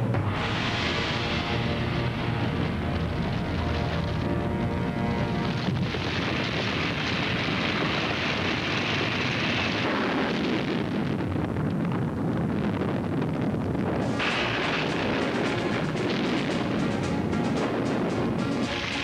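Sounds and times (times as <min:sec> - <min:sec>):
rushing roar of eruption: 0:00.0 - 0:19.0
bright hiss: 0:00.3 - 0:04.0.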